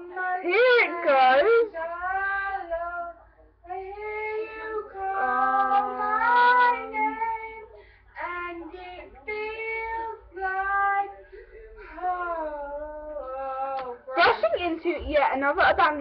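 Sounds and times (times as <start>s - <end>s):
girl singing long notes: 3.8s - 8.7s.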